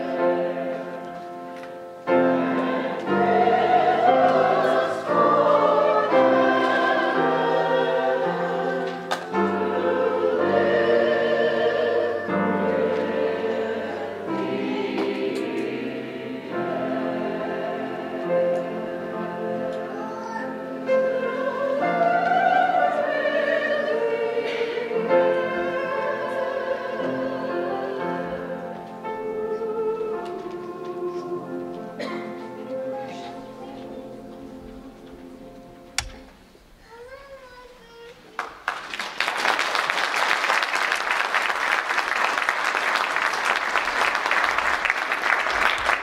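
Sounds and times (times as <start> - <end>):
mixed choir singing: 0.0 - 36.3
upright piano: 0.0 - 36.6
congregation applauding: 38.2 - 46.0.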